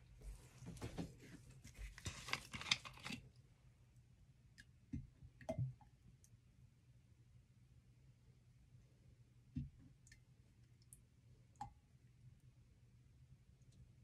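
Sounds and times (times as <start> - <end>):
gloves rustling and crackling: 0.5 - 3.2.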